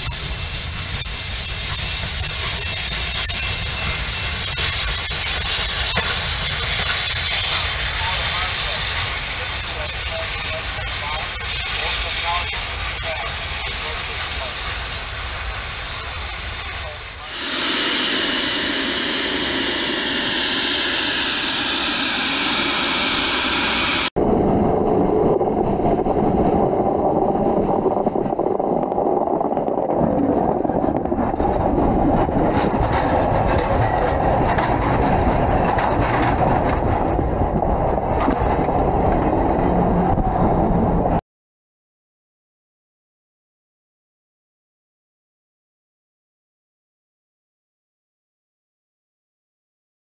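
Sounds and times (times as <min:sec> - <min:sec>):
steam locomotive hissing steam: 0:00.0 - 0:24.1
train wheels clattering over track: 0:32.5 - 0:39.7.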